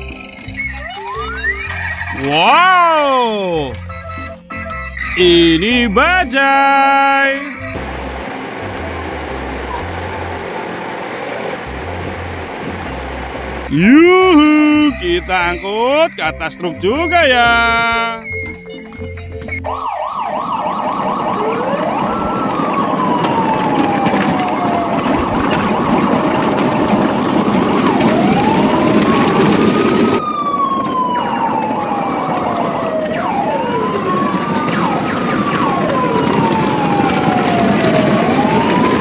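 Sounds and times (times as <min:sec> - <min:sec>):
electronic sirens wailing: 0:00.0 - 0:39.0
siren yelping warbles: 0:00.4 - 0:07.8, 0:13.7 - 0:18.6, 0:19.6 - 0:26.5, 0:27.6 - 0:39.0
steady rushing noise: 0:07.7 - 0:13.8.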